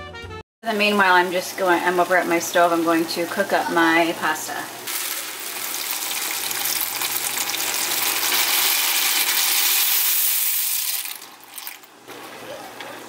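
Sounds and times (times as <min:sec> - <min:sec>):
pasta poured into boiling water: 0:04.9 - 0:12.0.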